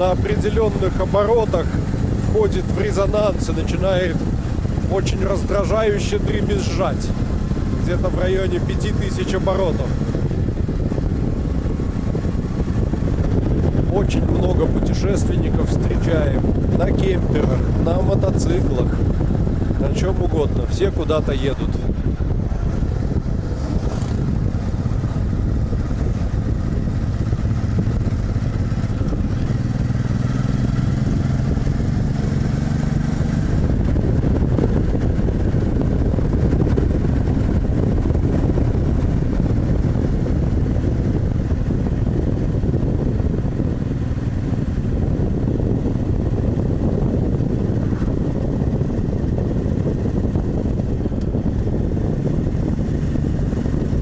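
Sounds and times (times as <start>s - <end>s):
motorcycle engine drone: 0.0s - 54.0s
wind rush and road noise: 0.0s - 54.0s.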